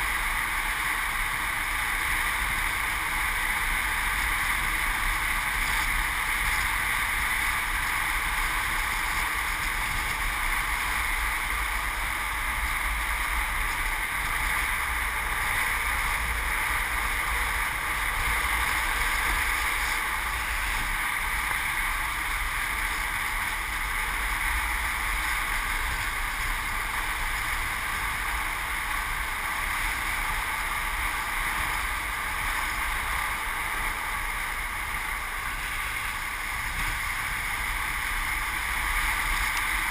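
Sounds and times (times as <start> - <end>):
wheels rolling on asphalt: 0.0 - 39.9.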